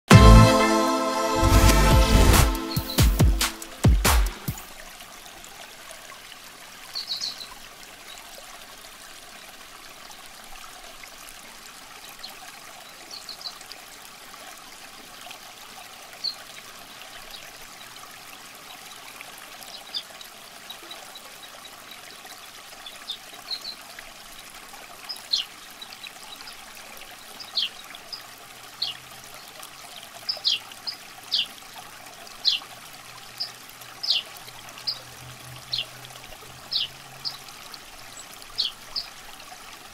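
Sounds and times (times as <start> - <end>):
water trickling: 4.4 - 39.9.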